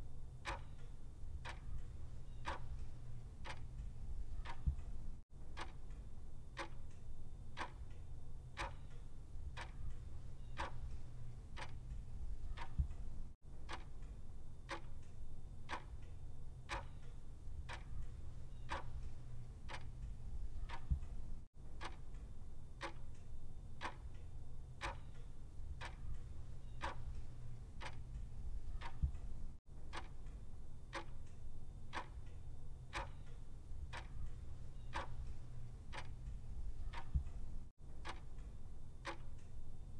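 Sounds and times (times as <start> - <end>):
low steady hum: 0.0 - 39.9
clock ticking: 0.4 - 6.0, 6.6 - 8.0, 8.6 - 15.1, 15.7 - 16.1, 16.7 - 24.2, 24.8 - 39.5.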